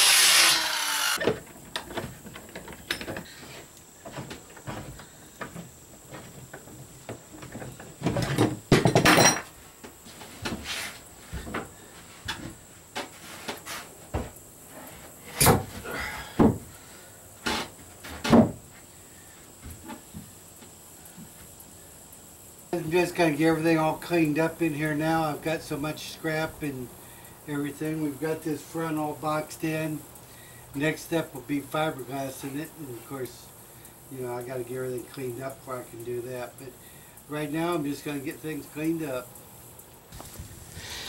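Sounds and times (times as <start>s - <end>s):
plywood boards knocking and scraping: 1.2s - 9.3s, 16.4s - 16.7s, 17.4s - 18.6s
loud thumps on wooden deck: 7.4s - 9.3s, 16.4s - 16.7s, 18.2s - 18.6s.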